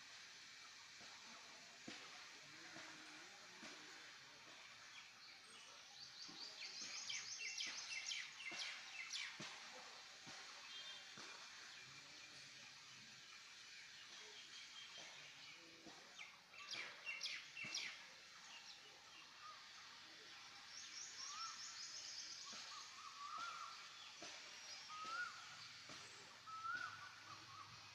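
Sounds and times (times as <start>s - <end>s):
faint outdoor background noise: 0.0s - 27.9s
birds chirping: 20.6s - 27.9s.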